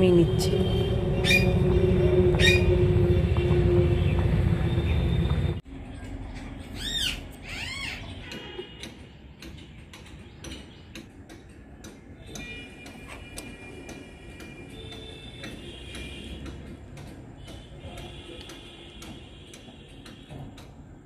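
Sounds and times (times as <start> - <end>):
light ticking and clicking: 8.8 - 21.0.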